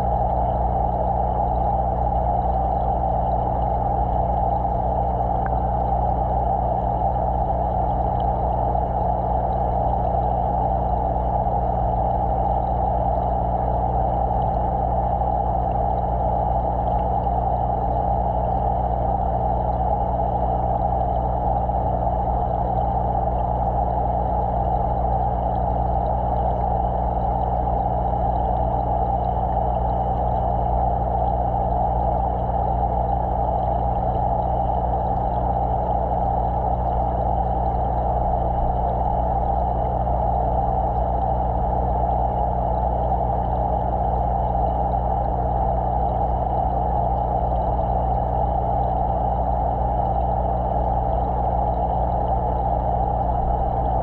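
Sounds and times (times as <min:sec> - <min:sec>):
aquarium pump humming: 0:00.0 - 0:54.0
muffled rush of water: 0:00.0 - 0:54.0.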